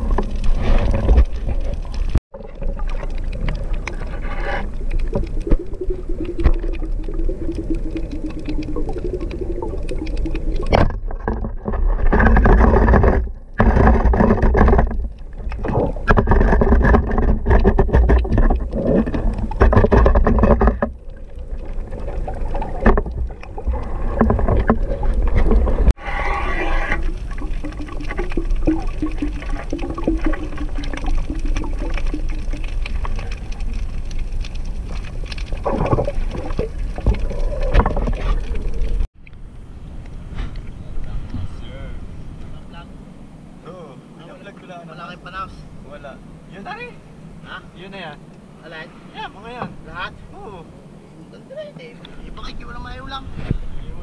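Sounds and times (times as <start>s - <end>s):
water rushing underwater: 0.0s - 41.4s.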